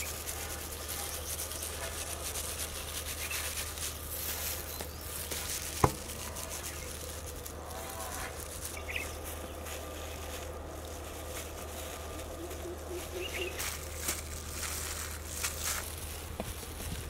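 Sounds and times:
spice rubbing on fish: 0.0 - 16.9
steady low hum: 0.0 - 17.0
faint bird chirps: 12.3 - 13.7.

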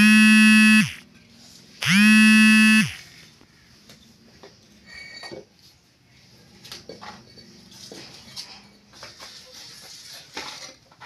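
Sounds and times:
buzzing horn-like tone: 0.0 - 1.0, 1.8 - 3.0.

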